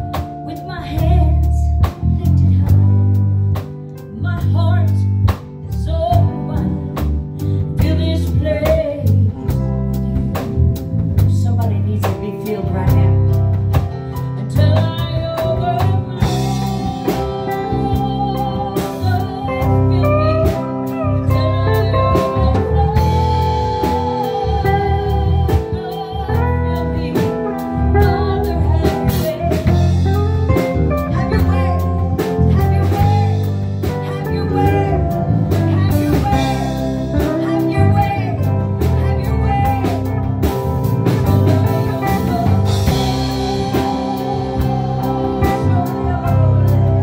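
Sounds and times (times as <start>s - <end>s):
band with guitar bass and drums: 0.0s - 47.0s
person singing: 14.2s - 40.6s, 41.3s - 47.0s.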